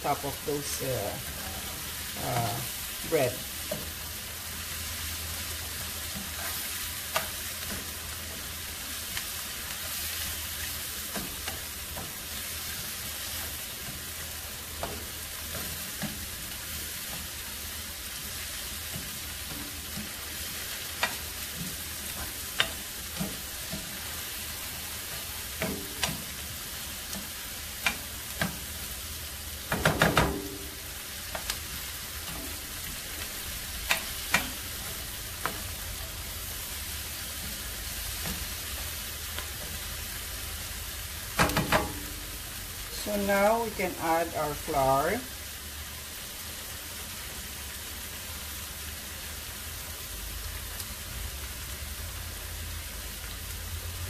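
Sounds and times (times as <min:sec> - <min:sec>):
vegetables sizzling in a frying pan: 0:00.0 - 0:54.0
spoon knocking against pan: 0:41.4 - 0:42.2.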